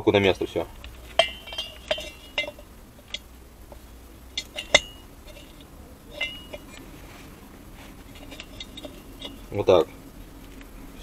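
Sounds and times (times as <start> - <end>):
light metal clinks and taps: 0.7 - 6.8, 8.0 - 10.7.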